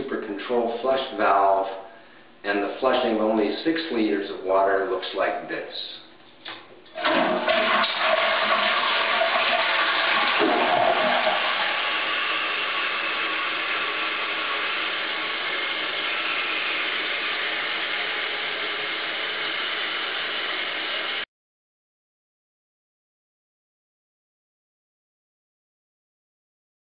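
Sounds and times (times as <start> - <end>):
toilet flushing: 6.8 - 21.2
gurgling swirl of water: 7.0 - 21.2.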